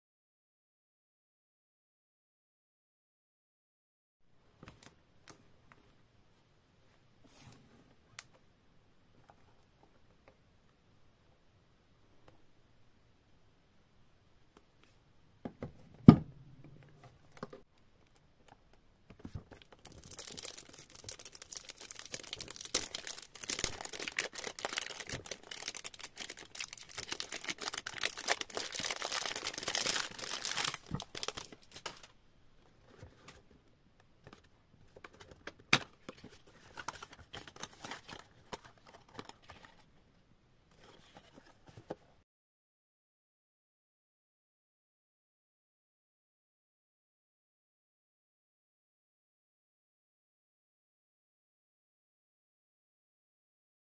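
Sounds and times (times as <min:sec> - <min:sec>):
cellophane wrap crinkling and tearing: 0:19.6 - 0:32.1, 0:36.5 - 0:39.8.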